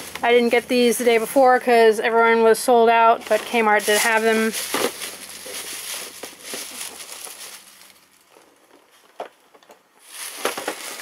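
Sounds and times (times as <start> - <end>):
plastic bag rustling: 3.2 - 9.2, 10.0 - 11.0.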